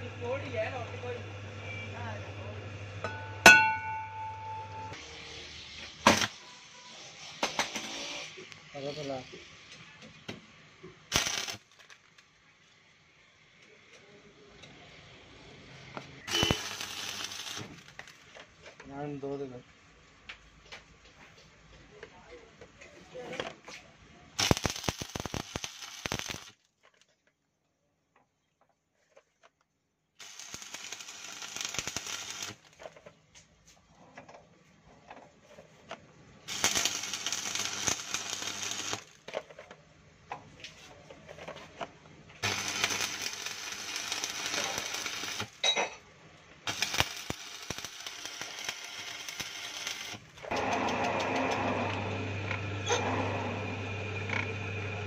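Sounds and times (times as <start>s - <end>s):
arc welding crackling: 11.1s - 11.9s, 16.2s - 18.4s, 24.4s - 26.6s, 30.2s - 32.9s, 36.5s - 39.3s, 42.4s - 45.6s, 46.6s - 53.0s.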